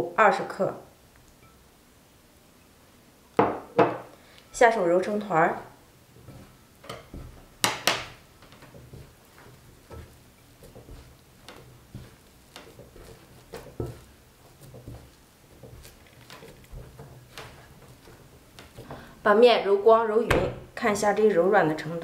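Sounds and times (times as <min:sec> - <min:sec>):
dough thumping in ceramic bowl: 0:06.2 - 0:19.1.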